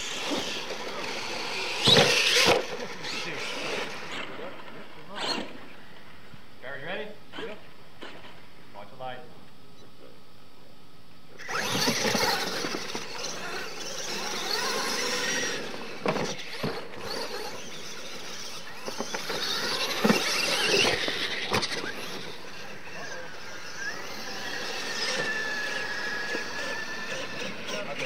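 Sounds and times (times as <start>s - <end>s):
toy truck motor whine: 0.0s - 5.7s, 11.4s - 28.0s
tyres scrabbling in dirt: 11.5s - 28.0s.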